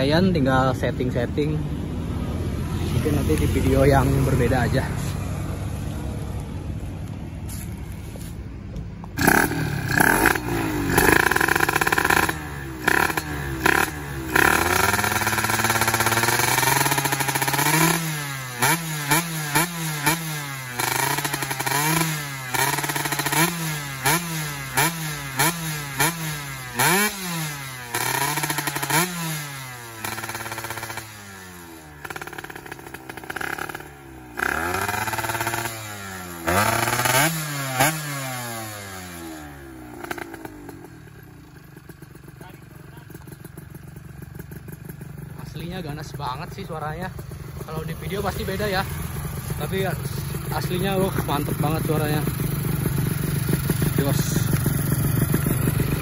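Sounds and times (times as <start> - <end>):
two-stroke engine revving: 9.1 - 56.0.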